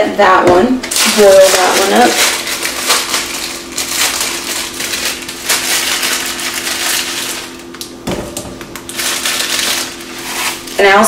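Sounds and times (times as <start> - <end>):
steady low hum: 0.0 - 11.0
dry noodle packet crunching: 0.9 - 8.0, 8.7 - 10.8.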